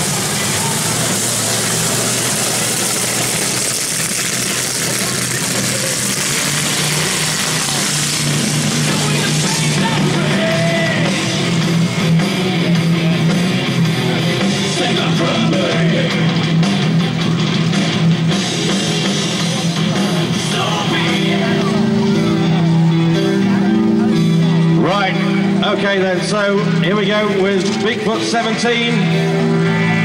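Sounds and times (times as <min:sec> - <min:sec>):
steady rushing noise: 0:00.0 - 0:10.2
rock music with electric guitar: 0:00.0 - 0:30.0.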